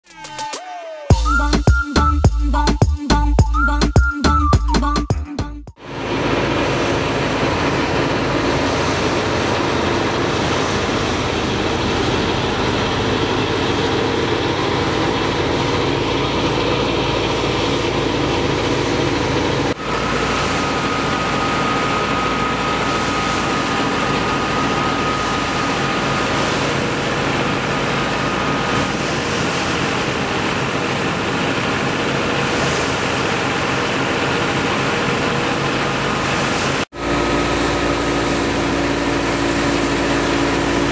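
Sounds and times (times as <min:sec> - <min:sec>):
thin steady whine: 0:05.8 - 0:40.9
thresher machine din: 0:05.8 - 0:40.9.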